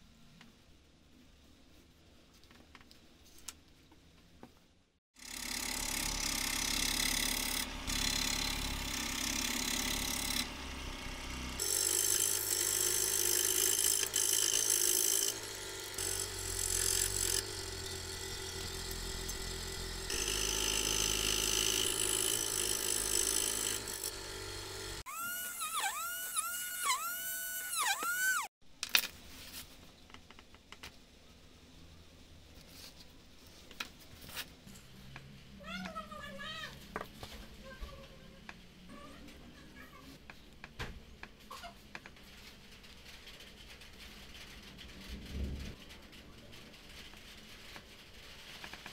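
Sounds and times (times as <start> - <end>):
scroll saw cutting wood: 5.2 - 28.5.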